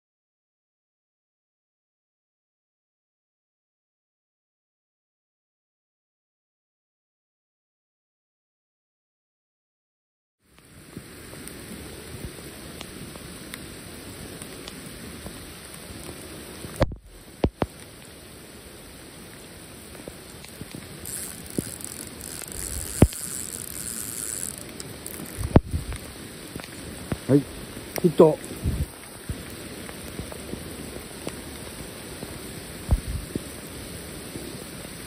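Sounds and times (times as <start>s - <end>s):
rain falling on a lake: 10.4s - 35.0s
fishing tackle clicks and knocks: 21.1s - 25.7s.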